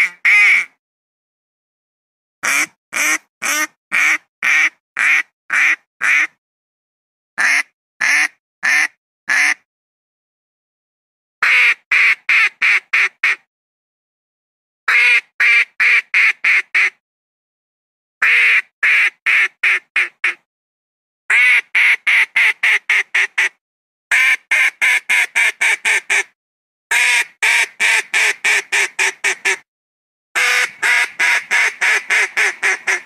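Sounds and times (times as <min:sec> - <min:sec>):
duck quacking: 0:00.0 - 0:00.8, 0:02.4 - 0:06.3, 0:07.4 - 0:09.6, 0:18.2 - 0:20.4, 0:26.9 - 0:29.6, 0:30.4 - 0:33.0.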